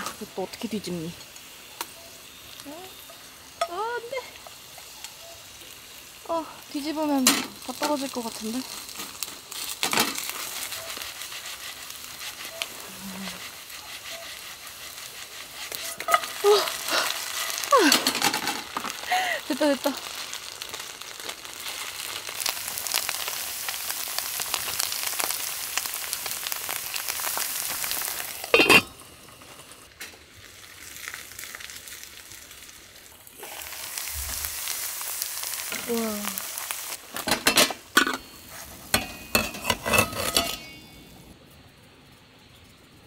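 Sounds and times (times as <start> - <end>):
potato pancake sizzling in oil: 0.0 - 41.3.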